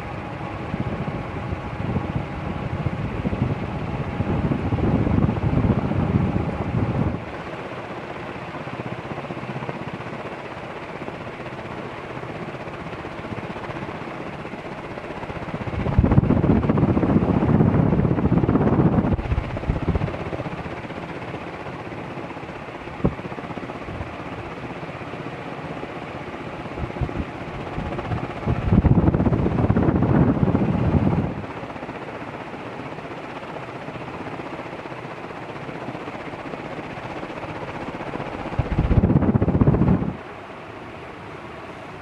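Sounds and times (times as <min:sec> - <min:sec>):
ceiling fan air rush: 0:00.0 - 0:42.0
wind buffeting microphone: 0:00.2 - 0:07.4, 0:14.7 - 0:22.0, 0:22.6 - 0:24.6, 0:26.6 - 0:31.6, 0:37.2 - 0:40.2.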